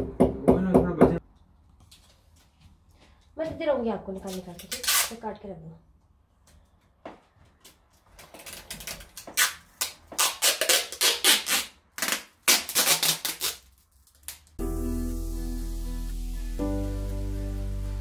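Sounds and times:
adhesive tape ripping off roll: 4.5 - 5.2, 8.2 - 14.6.

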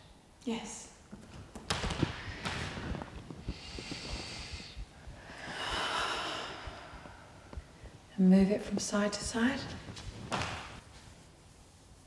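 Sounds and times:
woman breathing deeply: 2.0 - 8.1.

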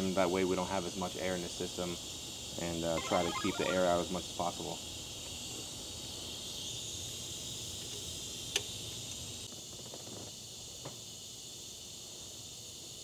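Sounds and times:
high-pitched background hiss: 0.0 - 13.0.

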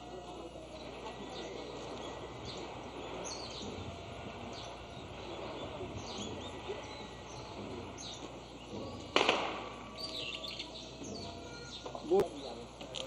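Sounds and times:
outdoor background noise: 0.0 - 13.0
small birds chirping: 0.0 - 13.0
sharp crack: 9.1 - 10.2.

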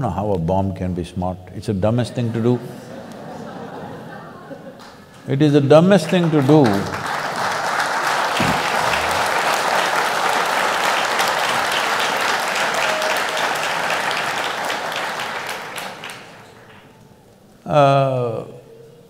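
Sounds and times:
audience applauding: 4.8 - 17.0.

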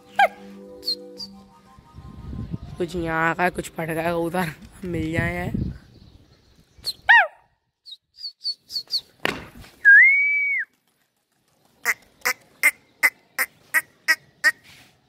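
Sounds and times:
person whistling: 0.8 - 1.4, 9.8 - 10.7.

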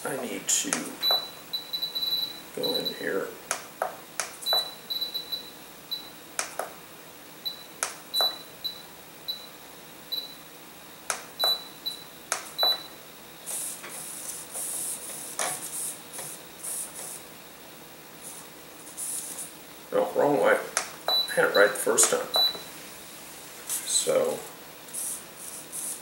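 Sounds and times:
soft hissy rustling: 13.4 - 17.4, 18.1 - 26.0.

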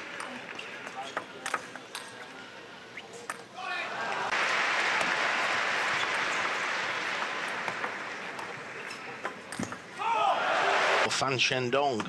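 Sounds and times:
large crowd applauding: 4.0 - 8.9, 10.4 - 11.1.

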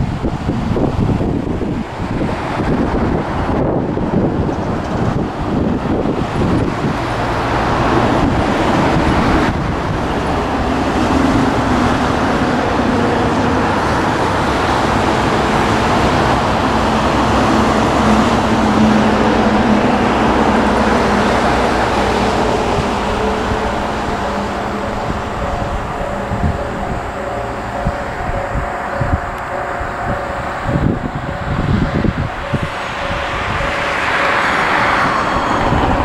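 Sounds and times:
diesel railcar engine humming: 0.0 - 36.0
steady rushing noise: 0.0 - 36.0.

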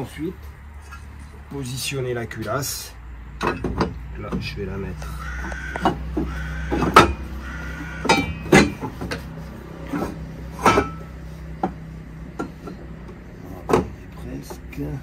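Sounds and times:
steady low hum: 0.0 - 15.0
metal engine parts clanking: 0.7 - 1.5, 2.4 - 15.0.

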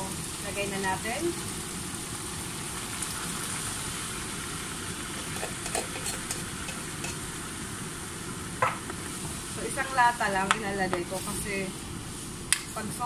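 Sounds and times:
meat sizzling in a frying pan: 0.0 - 13.0
liquid pouring: 3.1 - 7.2.

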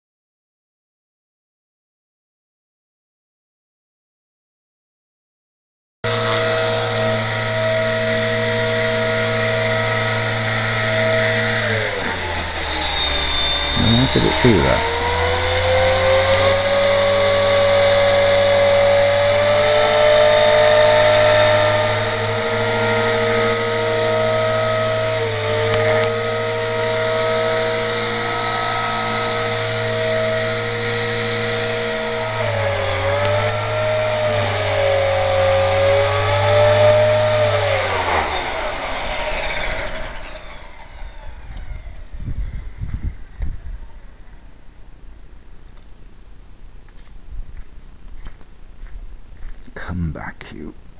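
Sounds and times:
model helicopter motor whining: 6.1 - 43.5.

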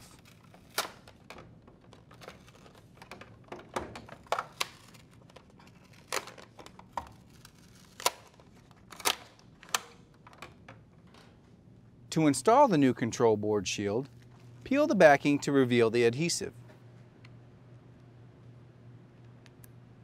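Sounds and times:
adhesive paper peeling and crackling: 0.0 - 1.3, 1.9 - 3.2, 4.2 - 9.2.

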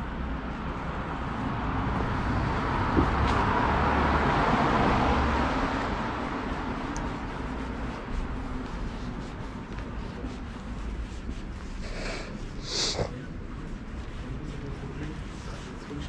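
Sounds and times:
car passing by: 0.2 - 9.1.

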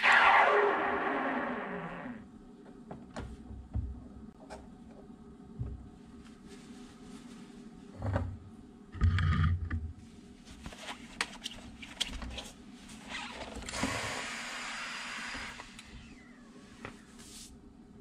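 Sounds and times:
cloth rustling: 6.0 - 7.8.

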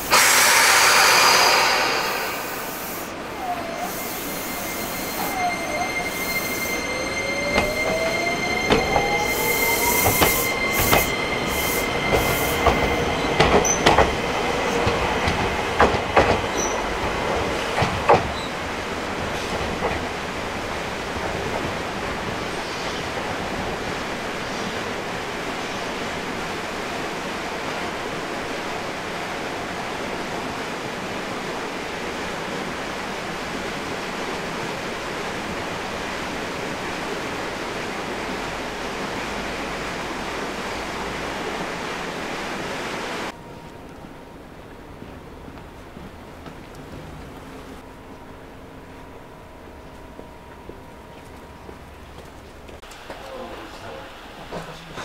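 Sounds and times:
steady hiss: 0.0 - 5.4
electric train inverter whine: 0.0 - 55.0
wheels clacking over rail joints: 9.9 - 22.4.

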